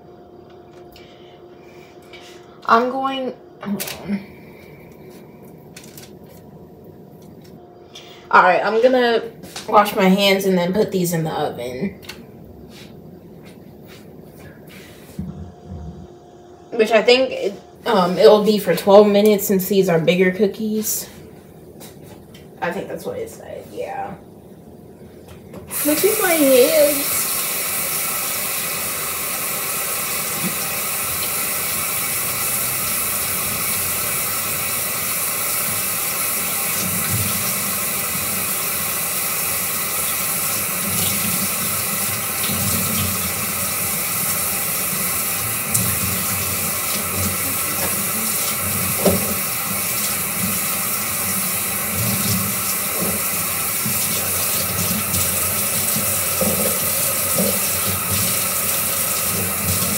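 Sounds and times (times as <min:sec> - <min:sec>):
tap running into sink: 0:45.7 - 0:49.5, 0:52.1 - 0:58.5.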